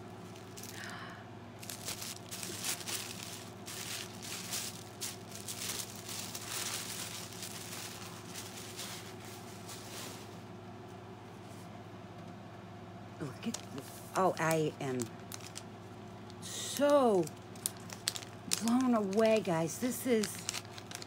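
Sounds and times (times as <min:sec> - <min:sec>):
packaging crinkling: 0:00.2 - 0:10.4, 0:13.4 - 0:15.7, 0:16.8 - 0:21.0.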